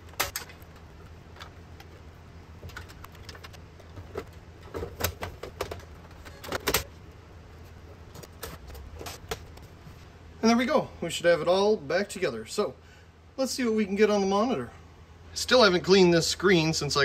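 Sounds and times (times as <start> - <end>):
computer case clicks and rattles: 0.0 - 2.0, 2.6 - 7.0, 8.1 - 9.7
room fan humming: 0.0 - 17.0.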